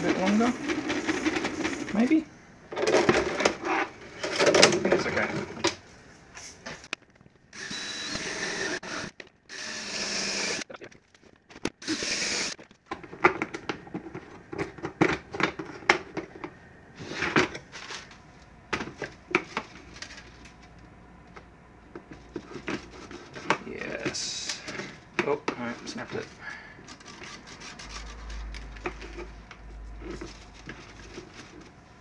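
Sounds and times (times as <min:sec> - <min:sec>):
cordless drill cutting plastic: 0:07.5 - 0:10.7, 0:11.7 - 0:12.6
plastic parts clicking and knocking: 0:12.6 - 0:16.6.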